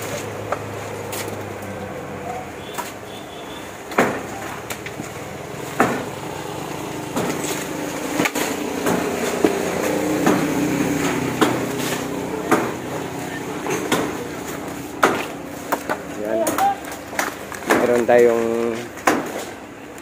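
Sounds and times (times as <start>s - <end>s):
sharp knocks: 3.9s - 5.1s, 5.7s - 6.2s, 7.1s - 19.6s.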